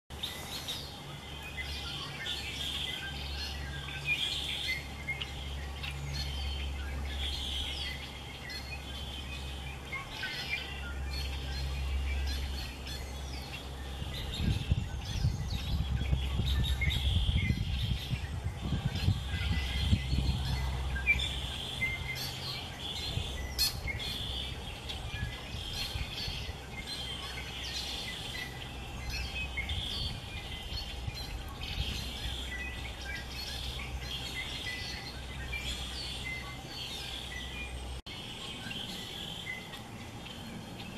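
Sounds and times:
small birds chirping: 0.1 - 40.9
low rumble: 13.8 - 24.0.

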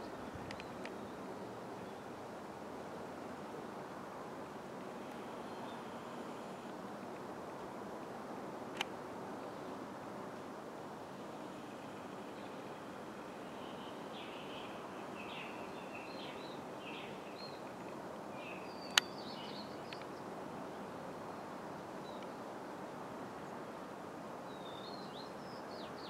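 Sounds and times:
steady background hiss: 0.0 - 26.0
small birds chirping: 13.5 - 20.3
sharp click: 18.9 - 19.1.

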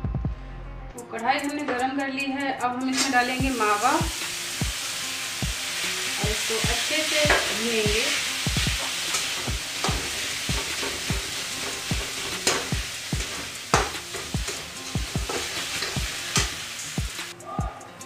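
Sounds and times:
background music with kick drum: 0.0 - 18.0
milk solids sizzling in a pan: 3.0 - 17.4
metal spatula scraping a pan: 8.8 - 16.7.

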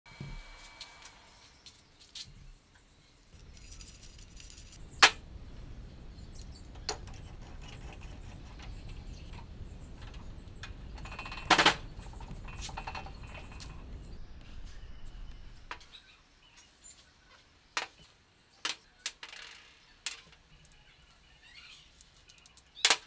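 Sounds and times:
steady low hum: 0.1 - 15.9.

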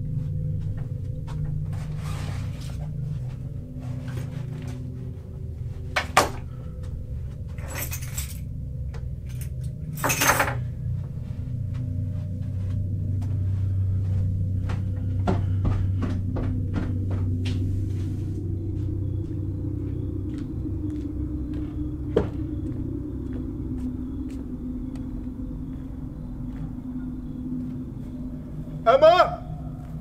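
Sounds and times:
low rumbling drone: 0.0 - 30.0
rustling noise: 0.2 - 7.7, 10.6 - 19.4.

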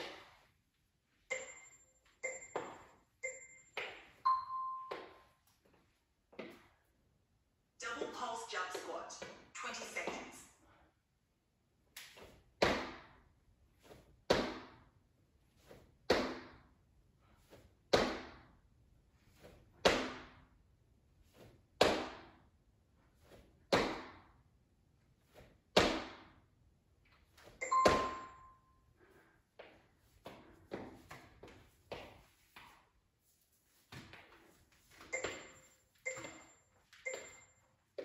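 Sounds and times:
short beep: 4.3 - 5.2, 27.6 - 28.7, 35.1 - 37.6.

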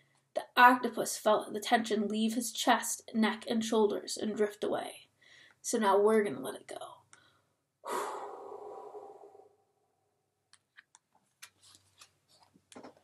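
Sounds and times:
woman sighing: 7.8 - 9.5.

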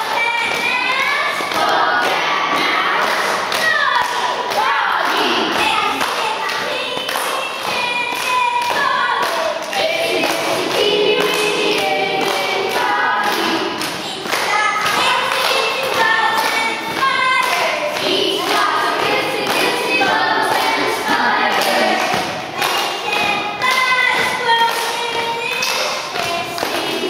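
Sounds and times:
boys singing together: 0.0 - 27.0.

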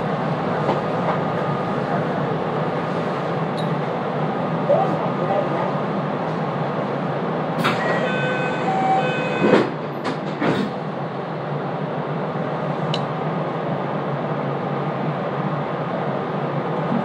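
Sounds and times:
train running noise: 0.0 - 17.0
train doors knocking: 9.2 - 10.7.

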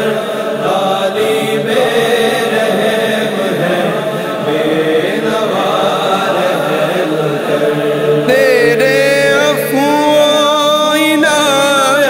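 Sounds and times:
backing voices chanting: 0.0 - 10.3
solo voice singing wordless melody: 8.2 - 12.0.

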